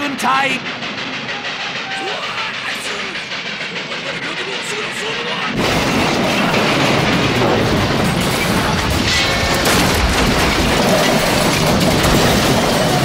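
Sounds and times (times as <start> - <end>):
crash rumble and blast: 5.5 - 13.0.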